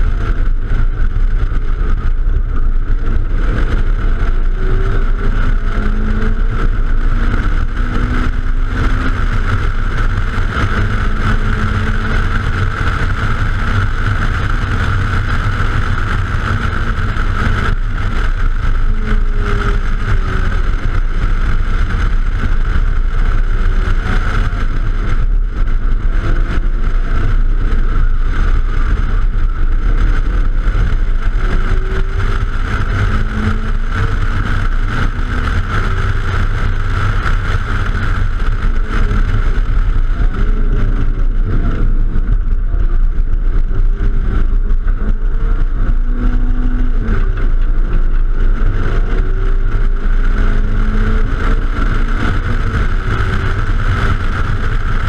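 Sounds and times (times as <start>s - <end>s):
car engine accelerating: 0.0s - 55.0s
tyre and road rumble: 0.0s - 55.0s.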